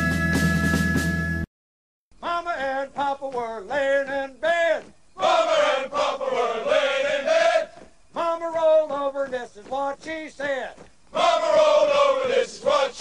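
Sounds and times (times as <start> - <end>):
music: 0.0 - 1.5
men chanting together: 4.5 - 9.2, 11.1 - 13.0.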